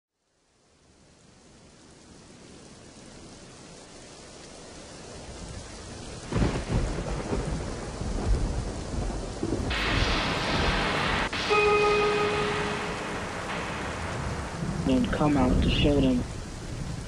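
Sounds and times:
steady rain: 0.1 - 17.0
thunder rumbling: 5.1 - 17.0.

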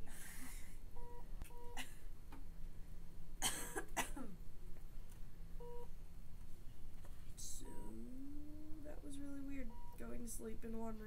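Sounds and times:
patient monitor beep: 1.0 - 1.8, 5.6 - 5.9, 9.6 - 10.1
person coughing: 3.4 - 4.4.

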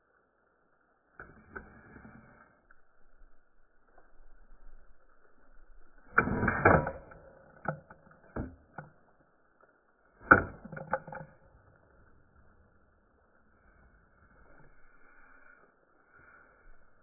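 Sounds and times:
shotgun action clicking and rattling: 6.3 - 9.3, 10.2 - 11.9.

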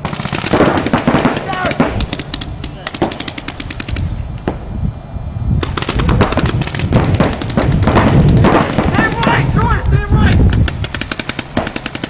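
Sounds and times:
paintball markers firing: 0.0 - 4.1, 5.6 - 9.4, 10.2 - 12.0.

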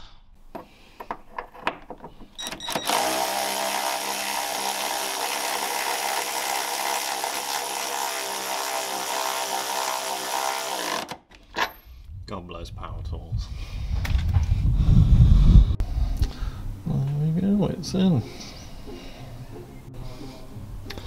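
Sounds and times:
ratchet clicks: 2.4 - 11.2
power ratchet spinning: 2.7 - 11.3.

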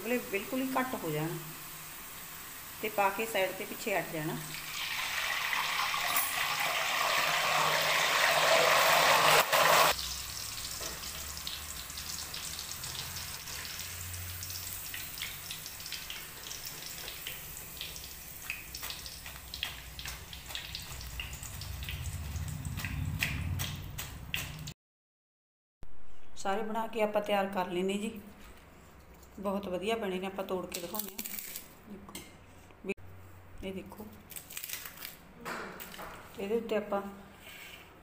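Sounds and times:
hot oil sizzling and spitting: 0.0 - 24.7
frying sizzle with crackles: 0.0 - 24.8.

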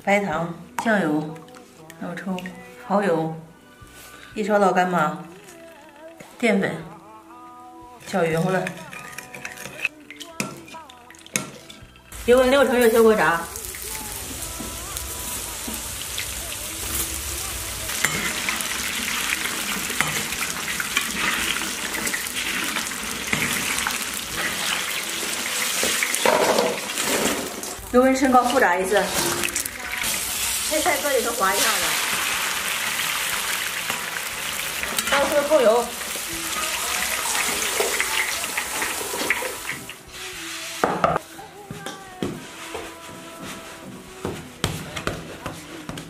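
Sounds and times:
eggplant deep-frying in hot oil: 12.2 - 40.5.

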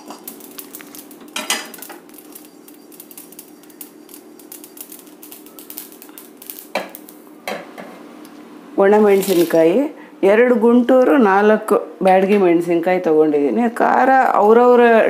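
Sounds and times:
spoon scraping a pan: 0.0 - 7.0.

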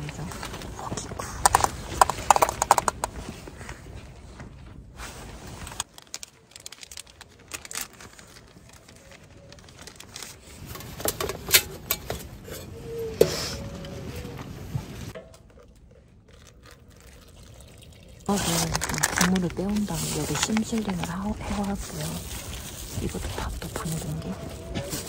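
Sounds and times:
metal pots and lids clattering: 10.7 - 13.4.

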